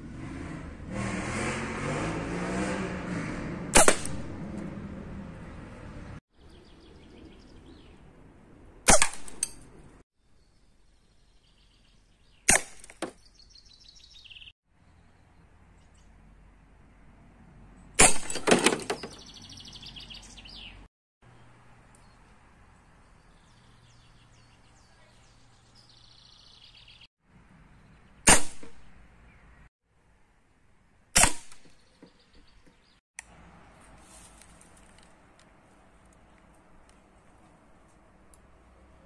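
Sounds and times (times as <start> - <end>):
rattling pellet strikes: 3.7 - 4.4, 8.8 - 9.8, 12.5 - 13.2, 18.0 - 19.1, 28.2 - 28.9, 31.2 - 31.8
air rifle shot cracks: 3.8 - 4.3, 8.8 - 9.5, 28.3 - 28.8, 31.2 - 31.8
birds chirping faintly: 13.2 - 16.2, 18.8 - 28.3.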